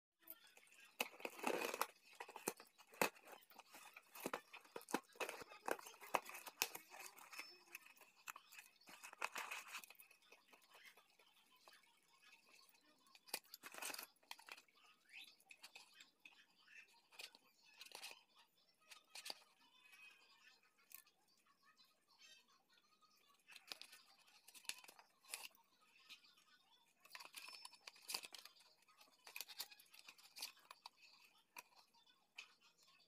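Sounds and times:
cardboard and paper rustling: 0:00.8 - 0:11.3, 0:12.4 - 0:14.6, 0:27.0 - 0:31.9.

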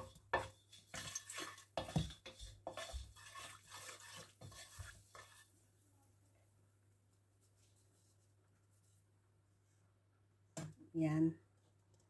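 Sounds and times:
wooden spatula scraping a wok: 0:00.0 - 0:05.6.

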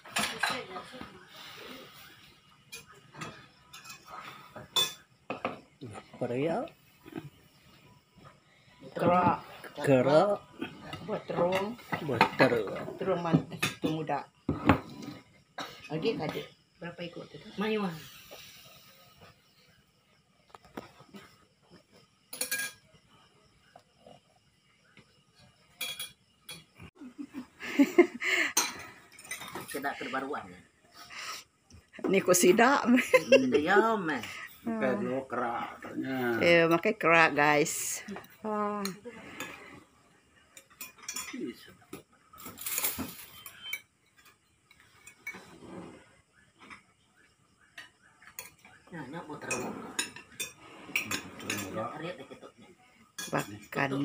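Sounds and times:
spoons clinking on plates: 0:02.6 - 0:05.6, 0:22.3 - 0:23.0, 0:25.7 - 0:26.7, 0:28.5 - 0:30.0, 0:40.5 - 0:41.5, 0:42.4 - 0:45.5, 0:47.8 - 0:48.8, 0:49.5 - 0:51.8, 0:53.1 - 0:53.8
spoon scraping plates: 0:42.3 - 0:46.9, 0:49.4 - 0:51.8.

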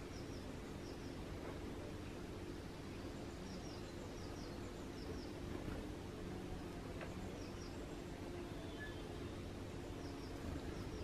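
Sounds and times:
small bird chirping: 0:00.0 - 0:01.3, 0:02.8 - 0:05.4, 0:07.1 - 0:11.0
low background hum: 0:00.0 - 0:11.0.

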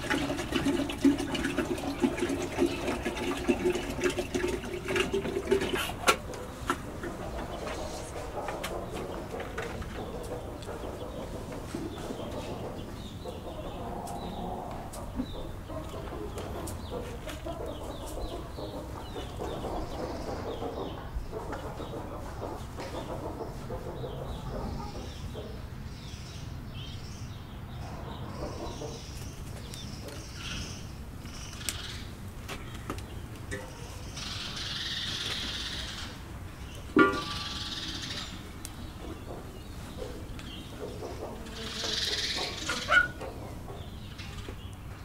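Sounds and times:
birds chirping and clucking: 0:00.0 - 0:45.0.

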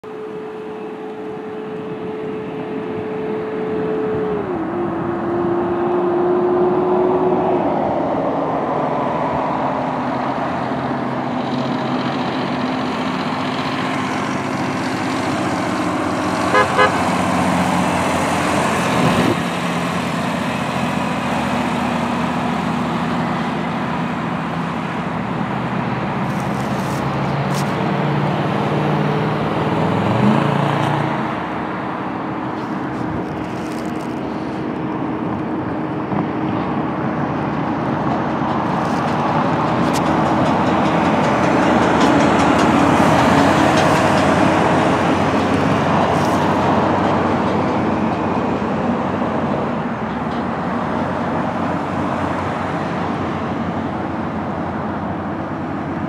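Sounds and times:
traffic noise: 0:00.0 - 0:56.0
truck diesel engine droning: 0:00.0 - 0:56.0
vehicle horn toots: 0:16.5 - 0:17.2.

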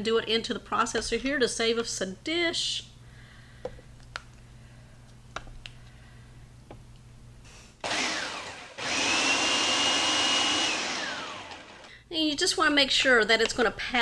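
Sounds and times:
food processor motor whining: 0:07.8 - 0:11.9.

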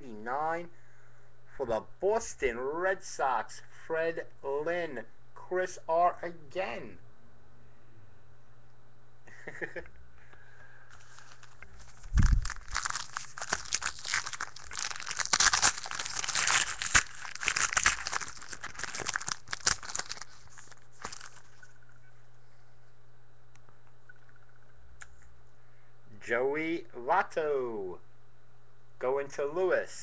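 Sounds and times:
wrapper tearing and crinkling: 0:11.0 - 0:21.8.

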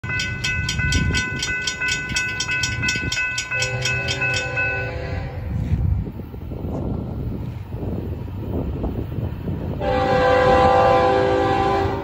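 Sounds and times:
railroad crossing bell ringing: 0:00.0 - 0:05.7
distant locomotive horn: 0:03.6 - 0:05.6, 0:09.8 - 0:12.0.

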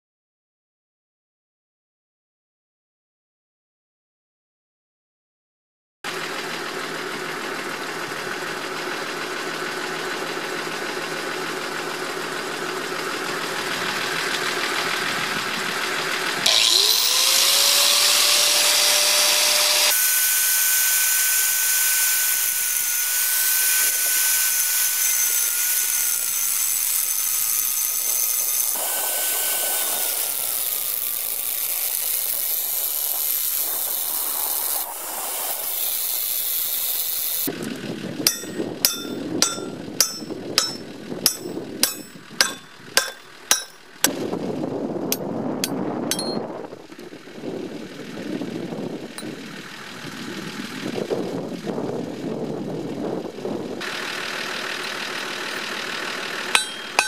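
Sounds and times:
steady machine hum: 0:06.2 - 0:34.3, 0:36.3 - 0:44.3, 0:56.4 - 0:57.0
angle grinder grinding steel: 0:16.4 - 0:37.6, 0:38.2 - 0:43.9, 0:45.6 - 0:46.4, 0:56.3 - 0:57.0.

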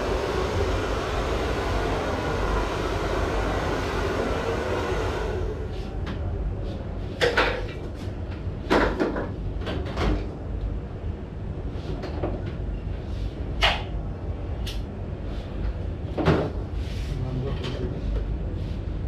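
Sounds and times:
steady low rumble: 0:00.0 - 0:07.2.

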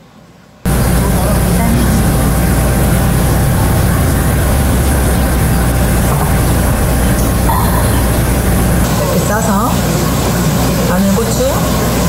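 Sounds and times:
loud low rumble: 0:00.7 - 0:09.0.

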